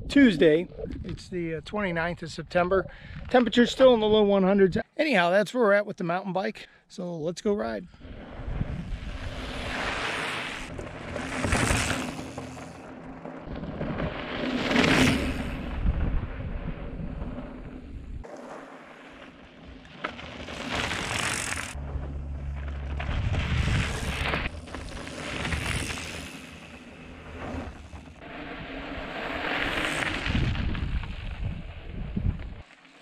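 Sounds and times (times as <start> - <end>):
wind on microphone: 0.0 - 3.4, 8.0 - 10.0, 13.5 - 18.3, 28.2 - 32.6
bike tyres rolling over gravel: 8.0 - 33.0.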